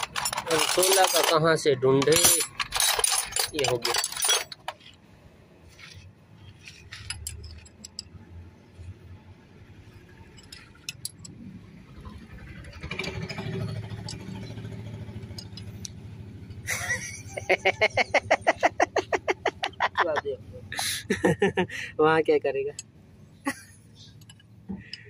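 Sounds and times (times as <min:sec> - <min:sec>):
metallic clinks of spanners: 0:00.0 - 0:04.9, 0:06.7 - 0:08.2, 0:10.3 - 0:11.3, 0:12.9 - 0:15.8, 0:23.5 - 0:25.0
low engine rumble: 0:00.0 - 0:25.0.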